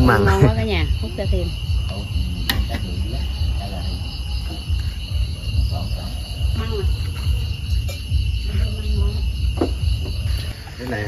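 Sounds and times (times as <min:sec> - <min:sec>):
low rumble: 0:00.0 - 0:10.6
crickets and night insects chirring: 0:00.0 - 0:11.0.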